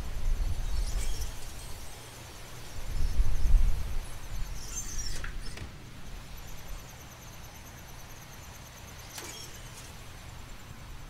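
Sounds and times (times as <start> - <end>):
wind rumbling on microphone: 0.0 - 2.0, 2.6 - 6.3
night insects trilling: 0.0 - 11.0
high squeaks dropping in pitch: 4.6 - 5.6.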